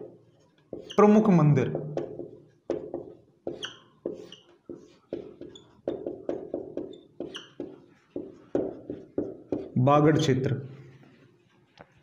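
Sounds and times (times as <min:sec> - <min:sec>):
marker tapping on whiteboard: 0:00.0 - 0:01.0, 0:01.6 - 0:09.8
marker squeaks: 0:00.4 - 0:01.3, 0:03.4 - 0:09.7.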